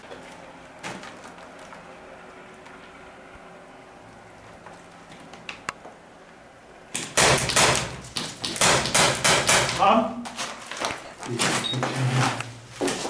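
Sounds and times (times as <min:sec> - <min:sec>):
airsoft pistol sharp cracks: 0:06.9 - 0:07.9.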